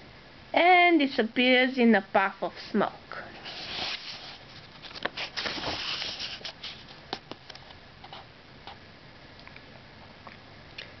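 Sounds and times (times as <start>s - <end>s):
book pages rustling: 3.4s - 8.3s.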